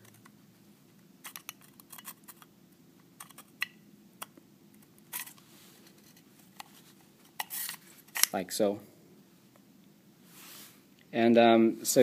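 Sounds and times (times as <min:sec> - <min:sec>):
short scrape: 0:10.3 - 0:10.8.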